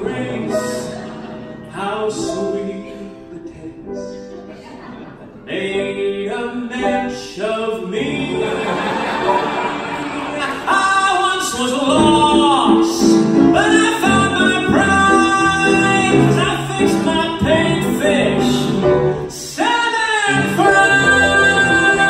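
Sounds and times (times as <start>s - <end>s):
man singing: 0.0s - 4.4s, 5.3s - 9.2s, 10.2s - 22.0s
grand piano accompaniment: 0.0s - 22.0s.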